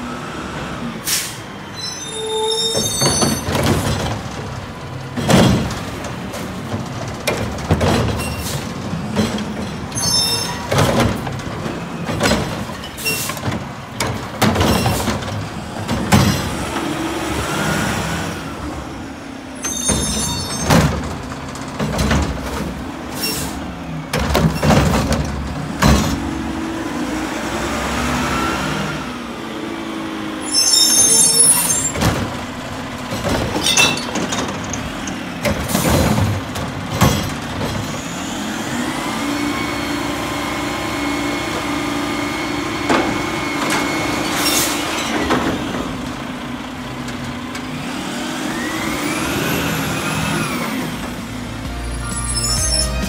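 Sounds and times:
carts clanking and banging: 0:02.6 - 0:17.0, 0:19.6 - 0:26.6, 0:30.6 - 0:38.4, 0:42.4 - 0:53.0
diesel engine running: 0:45.3 - 0:53.0.

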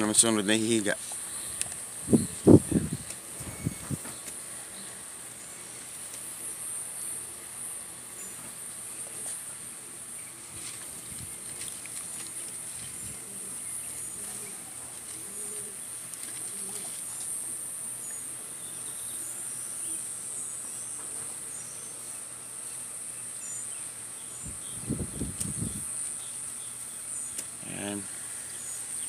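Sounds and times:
steady high hiss: 0:00.0 - 0:29.0
faint high chirps: 0:01.3 - 0:05.6
pigeon cooing: 0:12.4 - 0:17.6.

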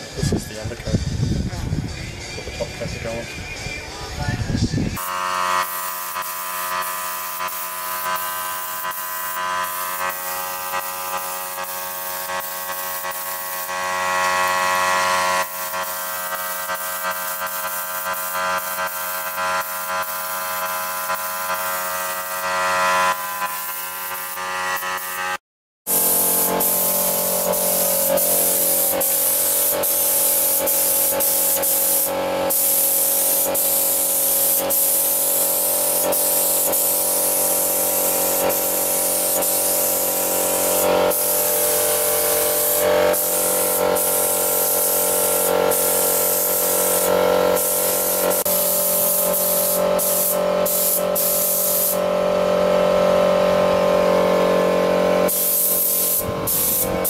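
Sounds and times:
paint spray gun hissing: 0:05.0 - 0:24.4, 0:25.9 - 0:52.2, 0:54.5 - 0:57.0.

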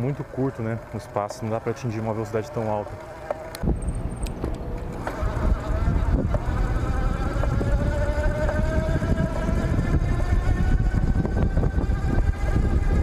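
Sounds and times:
electric bike motor whining: 0:00.0 - 0:13.0
wind rumble on microphone: 0:03.6 - 0:13.0.

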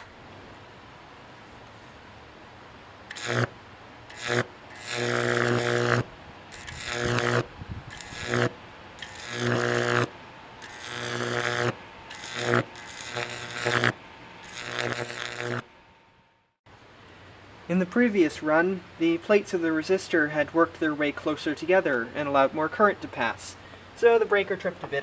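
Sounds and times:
high-voltage arcs buzzing: 0:03.1 - 0:15.8.

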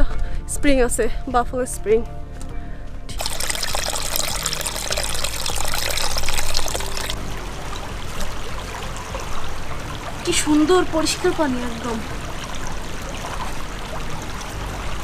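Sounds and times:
stream trickling over rocks: 0:03.1 - 0:15.0.

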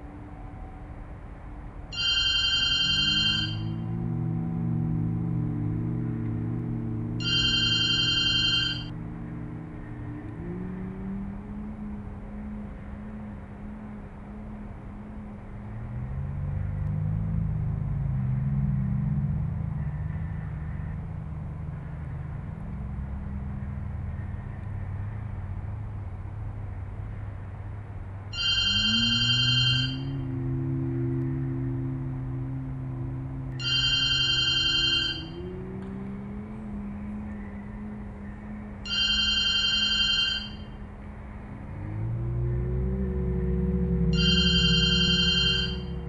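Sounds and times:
steady low hum: 0:00.0 - 0:46.0
electronic telephone ringing: 0:01.9 - 0:03.8, 0:07.2 - 0:08.9, 0:28.3 - 0:30.1, 0:33.6 - 0:35.4, 0:38.9 - 0:40.8, 0:44.2 - 0:46.0.

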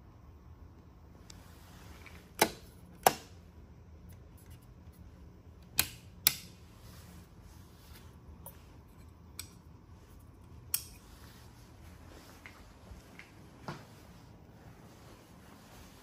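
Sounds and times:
light switch clicks: 0:05.6 - 0:06.5.

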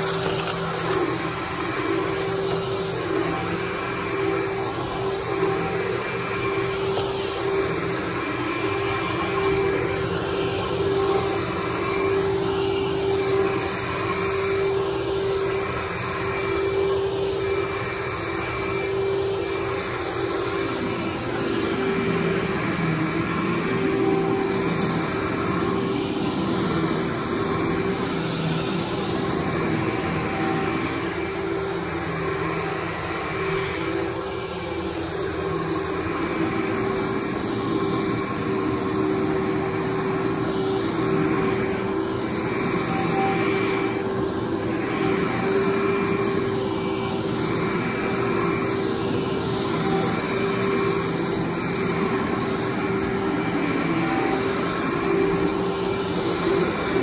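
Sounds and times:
vacuum cleaner running on carpet: 0:00.0 - 0:57.0.

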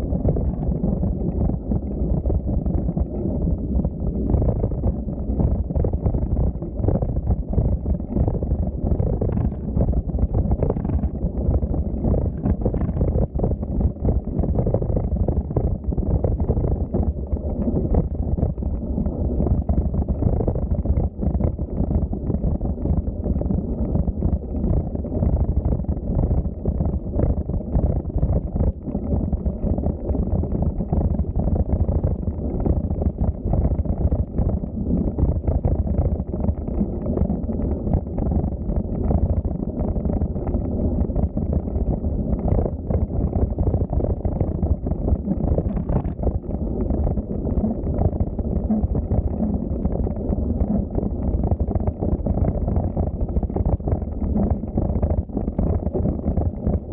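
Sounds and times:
wind buffeting microphone: 0:05.4 - 0:17.8.

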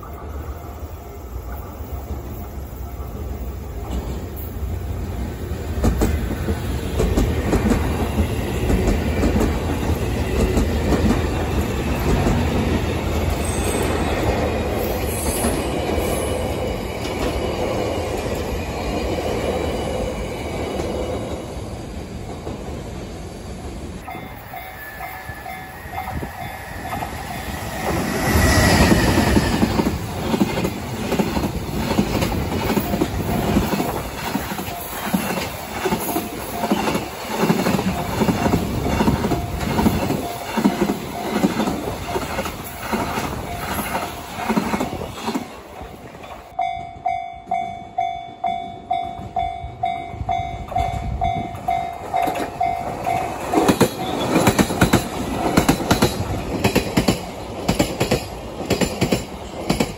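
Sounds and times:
commuter train rushing past: 0:00.0 - 0:59.9
freight train wheels clattering: 0:03.8 - 0:21.5, 0:26.0 - 0:46.6, 0:50.5 - 0:59.9.

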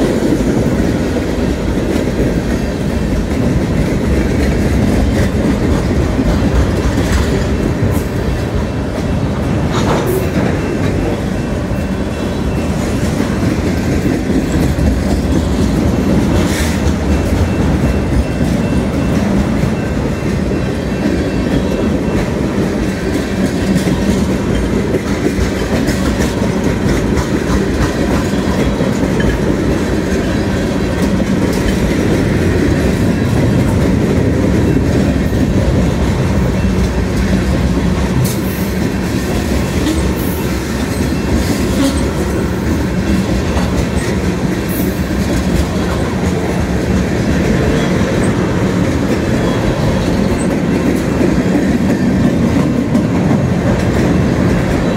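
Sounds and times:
freight train wheels rumbling: 0:00.0 - 0:54.9.

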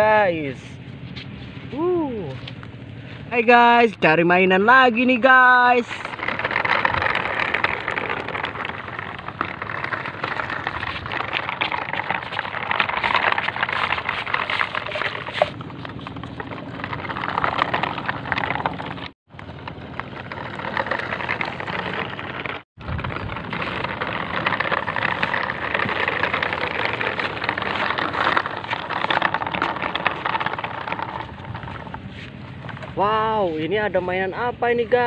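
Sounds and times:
crackling rustling noise: 0:05.9 - 0:33.0.

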